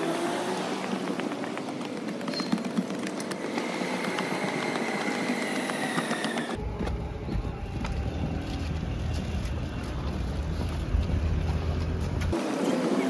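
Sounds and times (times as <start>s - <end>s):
road traffic passing: 0.0s - 13.0s
low rumble: 6.6s - 12.4s.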